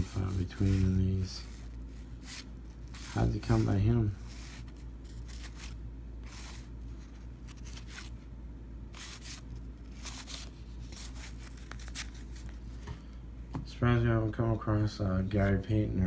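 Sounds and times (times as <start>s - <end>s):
papery card swishes: 0.0s - 8.2s, 8.9s - 12.8s
steady low hum: 0.0s - 16.0s.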